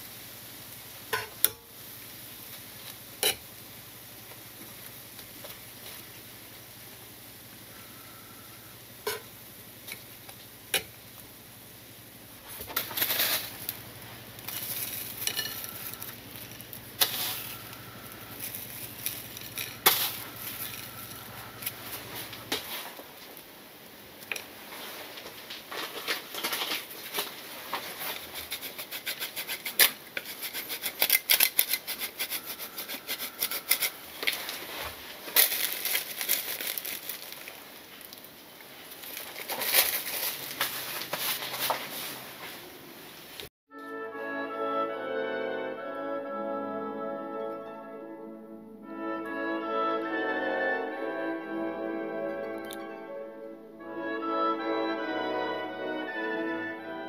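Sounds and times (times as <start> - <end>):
tongs clinking on ceramic plate: 14.5 - 16.1.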